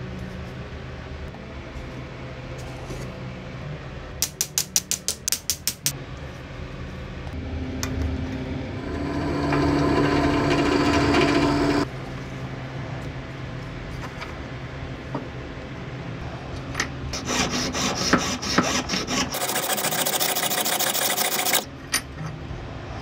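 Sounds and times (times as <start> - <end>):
drill press cutting metal: 8.8 - 11.8, 19.3 - 21.6.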